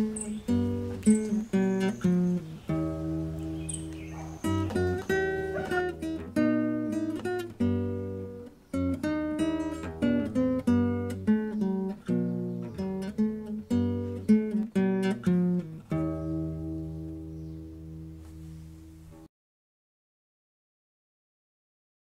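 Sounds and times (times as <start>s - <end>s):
acoustic guitar music: 0.0s - 19.3s.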